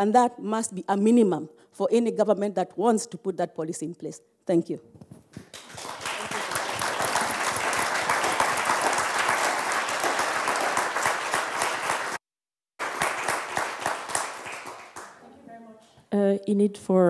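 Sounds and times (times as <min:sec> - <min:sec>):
audience applauding: 0:05.5 - 0:12.2, 0:12.8 - 0:15.2.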